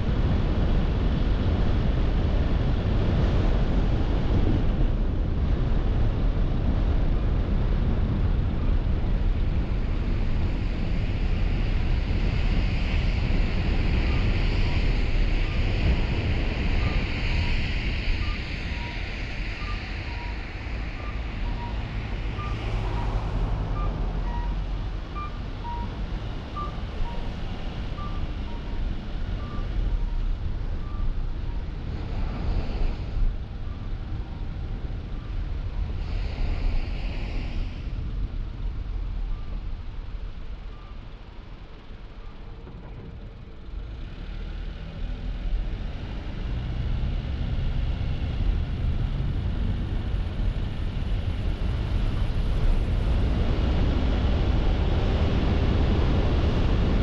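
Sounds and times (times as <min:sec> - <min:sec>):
wind hiss: 0:00.0 - 0:42.2
road and tyre rumble: 0:00.0 - 0:57.0.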